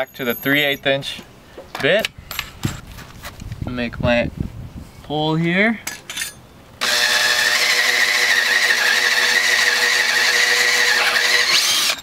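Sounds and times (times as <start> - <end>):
drill boring into wood: 6.8 - 12.0.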